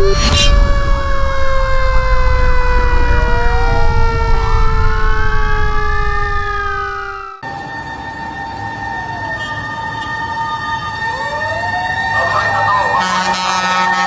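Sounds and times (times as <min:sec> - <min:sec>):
rising wail: 0:00.0 - 0:07.4
sinking electronic tones: 0:00.0 - 0:07.4
swoosh: 0:00.0 - 0:07.4
siren-like warble: 0:00.0 - 0:10.0.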